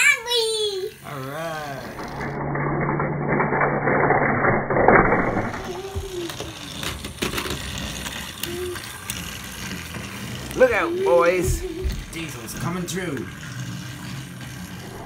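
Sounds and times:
toy trains clattering on wooden track: 0:01.6 - 0:04.2, 0:05.0 - 0:15.0.

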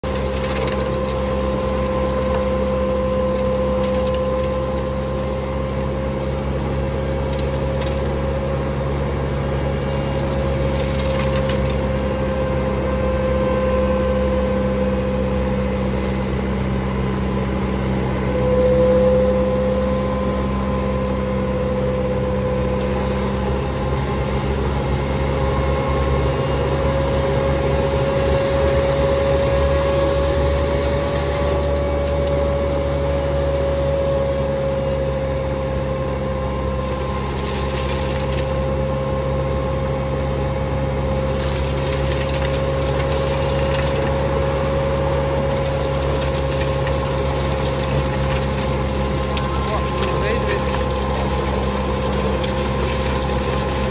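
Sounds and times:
street sweeper vacuum fan whine: 0:00.0 - 0:53.9
truck engine drone: 0:00.0 - 0:53.9.

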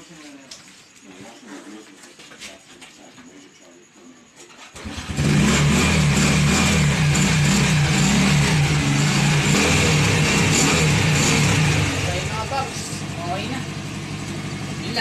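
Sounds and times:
motorcycle engine starting and running: 0:04.7 - 0:15.0.

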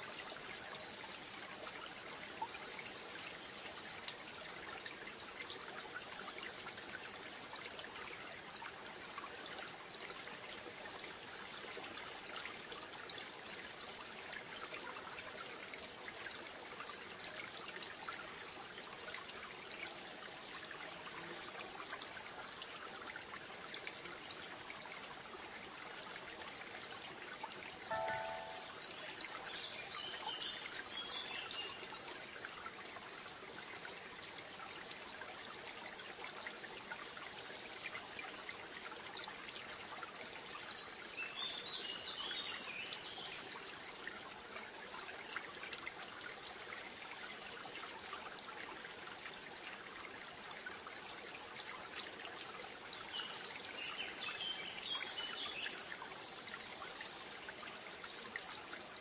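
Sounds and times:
water trickling: 0:00.0 - 0:59.0
bird chirping: 0:27.9 - 0:28.8.

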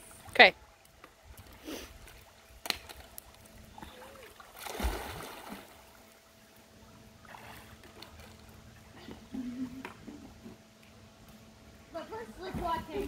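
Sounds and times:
water splashing in pool: 0:01.2 - 0:06.3, 0:07.2 - 0:08.6
splash with low thump: 0:04.6 - 0:05.8.

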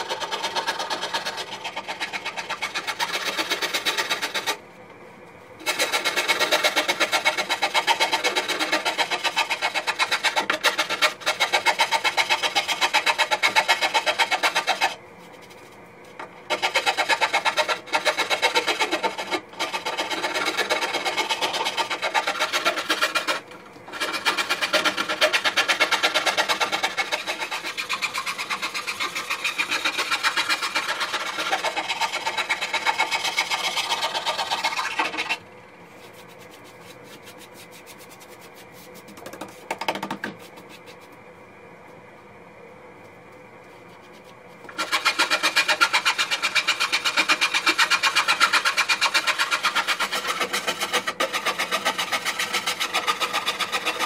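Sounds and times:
hand scraper rasping on wood: 0:00.0 - 0:04.6, 0:05.6 - 0:35.4, 0:36.0 - 0:41.1, 0:44.1 - 0:54.0.

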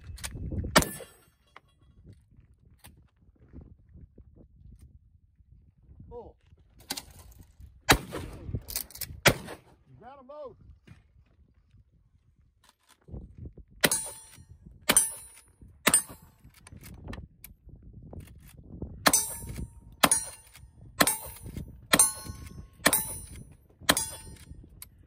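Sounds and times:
rifle shots: 0:07.9 - 0:08.4, 0:09.2 - 0:09.8, 0:13.8 - 0:16.3, 0:19.1 - 0:24.4
steel target clanging: 0:13.9 - 0:16.3, 0:19.1 - 0:24.4.

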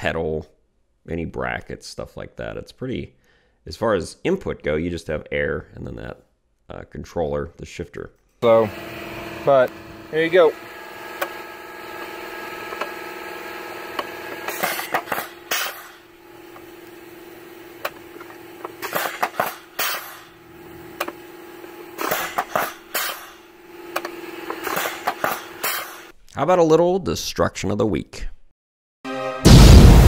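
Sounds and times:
air valves hissing: 0:08.4 - 0:26.1
steady hum: 0:08.4 - 0:26.1.

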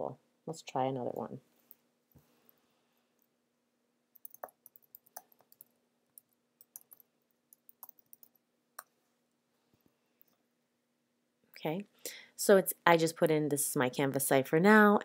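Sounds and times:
keyboard typing clicks: 0:04.2 - 0:08.4.

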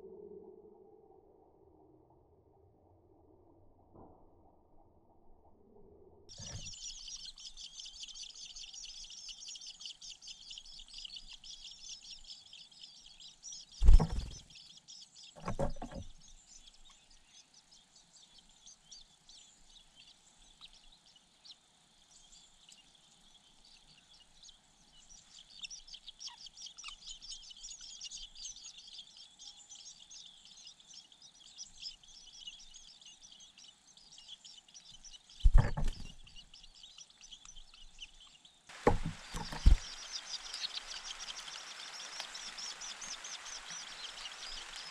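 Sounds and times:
nestlings chirping: 0:06.3 - 0:44.9
heavy thumps: 0:13.8 - 0:14.4, 0:35.4 - 0:36.2, 0:38.8 - 0:39.9.

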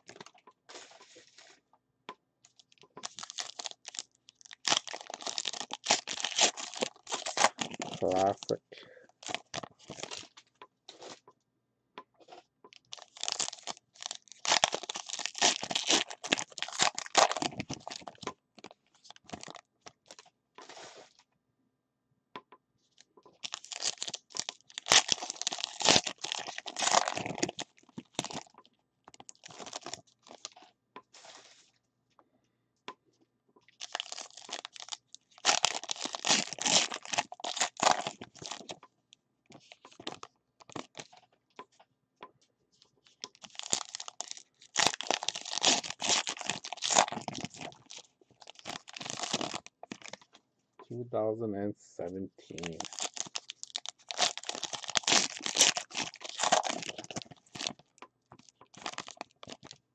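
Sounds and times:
foil wrappers crinkling and tearing: 0:03.0 - 0:08.5, 0:09.2 - 0:11.2, 0:12.8 - 0:21.2, 0:23.3 - 0:30.6, 0:33.8 - 0:38.8, 0:39.5 - 0:41.2, 0:43.0 - 0:50.3, 0:52.5 - 0:59.8.

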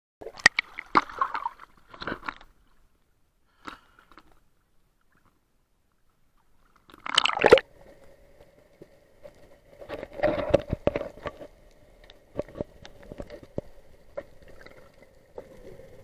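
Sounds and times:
sea water splashing: 0:00.2 - 0:02.4, 0:06.8 - 0:07.9
faint steady hum: 0:00.4 - 0:16.0.

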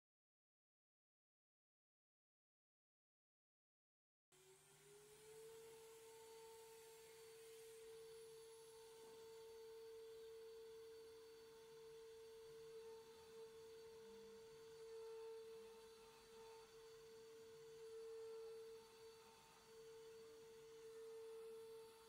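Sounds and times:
router spindle whine: 0:04.4 - 0:22.0.

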